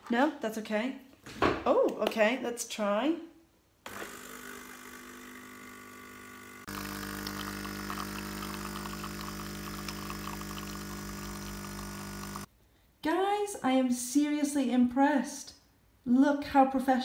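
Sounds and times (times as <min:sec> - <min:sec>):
espresso machine pump buzzing: 0:03.9 - 0:12.5.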